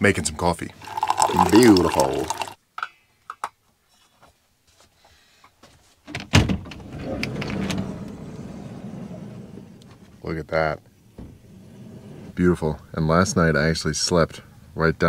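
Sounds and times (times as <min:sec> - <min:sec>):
rushing rumble: 0:06.8 - 0:12.4
van door unlatching clunk: 0:11.1 - 0:12.3.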